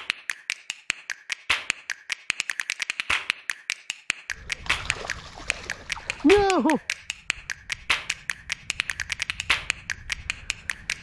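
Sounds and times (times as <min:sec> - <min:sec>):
percussion clicks and taps: 0:00.0 - 0:11.0
wind rumble on microphone: 0:07.0 - 0:11.0.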